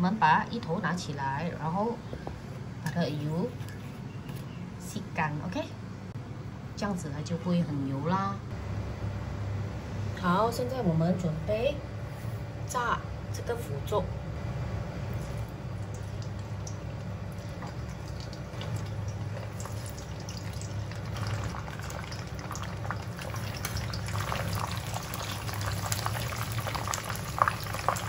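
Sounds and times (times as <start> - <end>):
low hum: 1.2 - 28.0
frying in hot oil with crackles: 15.0 - 28.0.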